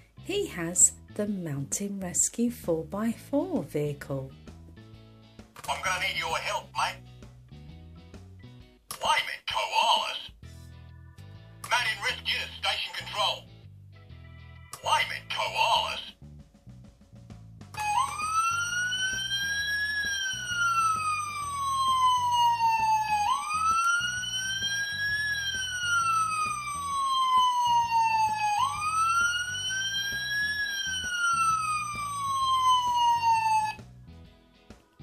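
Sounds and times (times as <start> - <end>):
toy electronic siren wailing: 17.8 - 33.8.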